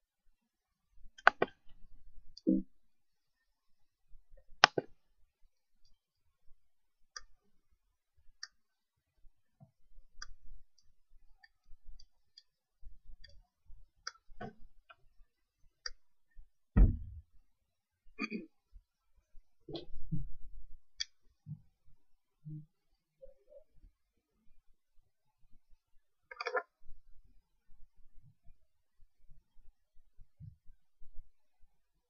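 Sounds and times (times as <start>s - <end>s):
clicks and taps: 1.2s - 1.7s, 4.6s - 5.0s
heavy low thump: 16.8s - 17.2s.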